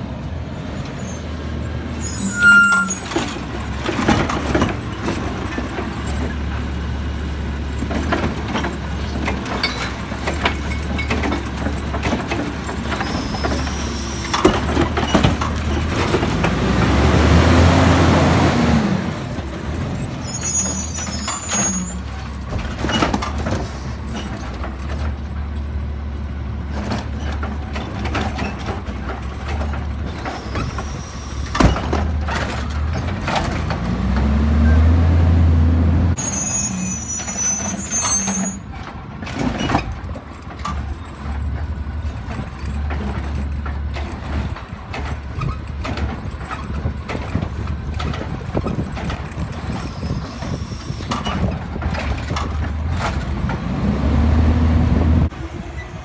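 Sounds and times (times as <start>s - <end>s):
air brakes hissing: 13.0s - 14.4s, 30.2s - 31.6s, 49.8s - 51.4s
knocks and bangs of cart dumping: 14.3s - 17.6s, 31.4s - 34.6s
garbage truck engine revving: 14.6s - 19.8s, 52.8s - 55.3s.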